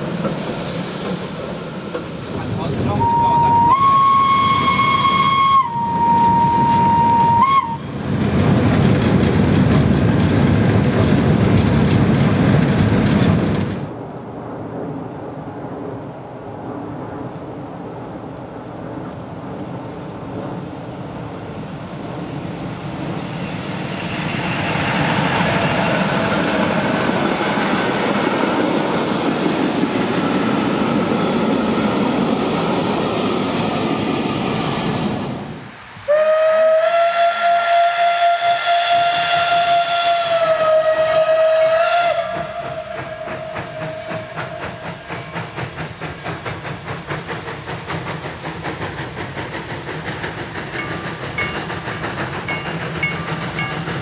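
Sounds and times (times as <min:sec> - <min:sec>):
steam locomotive exhaust beats: 0:00.0 - 0:14.0, 0:17.3 - 0:54.0
freight train rolling past: 0:00.0 - 0:54.0
steam locomotive whistle: 0:02.9 - 0:08.0, 0:36.1 - 0:45.1.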